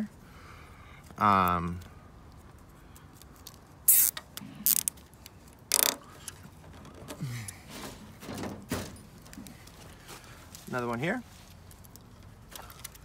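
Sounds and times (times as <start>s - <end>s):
zip tie ratcheting tight: 3.9s - 5.0s, 5.7s - 6.0s.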